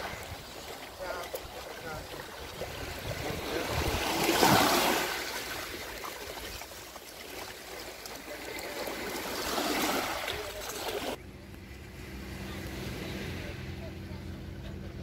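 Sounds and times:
water washing over pebbles: 0:00.0 - 0:11.2.

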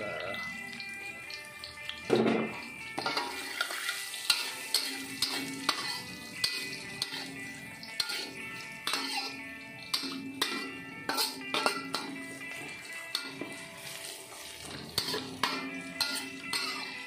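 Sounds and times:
frying sizzle: 0:00.0 - 0:17.0
metal ladle clanking against wok: 0:02.2 - 0:07.3, 0:08.0 - 0:12.2, 0:14.8 - 0:17.0.

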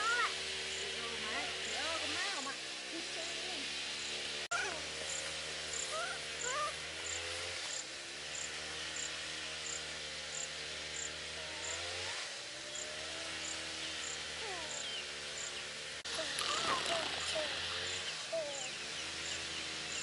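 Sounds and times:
steady insect hiss: 0:05.0 - 0:11.2, 0:12.6 - 0:15.8.

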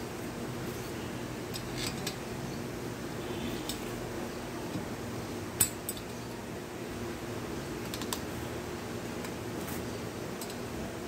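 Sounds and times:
low background hum: 0:00.0 - 0:11.0
metal parts clicking: 0:01.5 - 0:02.3, 0:10.4 - 0:10.7.

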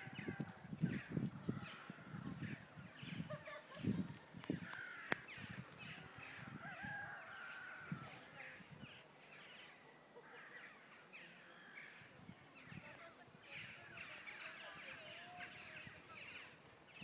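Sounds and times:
harsh bird calls: 0:04.6 - 0:17.0.

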